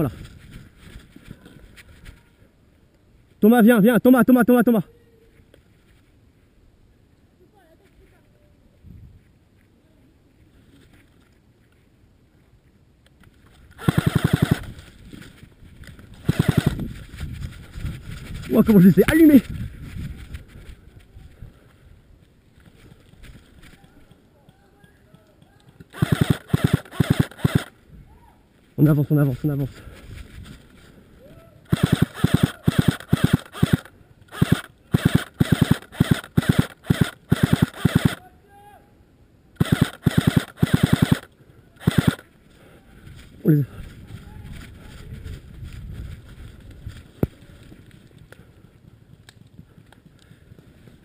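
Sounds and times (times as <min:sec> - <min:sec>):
airsoft rifle full-auto burst: 0:13.8 - 0:14.8, 0:16.2 - 0:16.8, 0:25.9 - 0:27.7, 0:31.7 - 0:38.2, 0:39.6 - 0:42.2.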